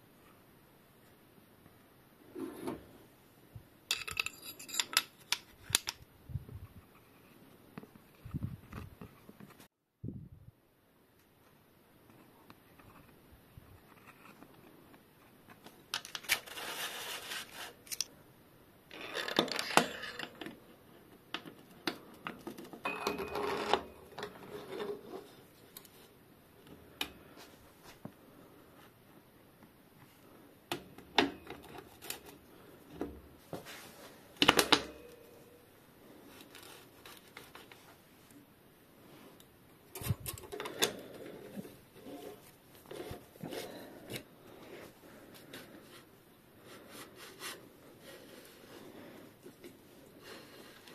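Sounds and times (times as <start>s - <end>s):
metal rubbing and scraping: 40.0s - 45.8s.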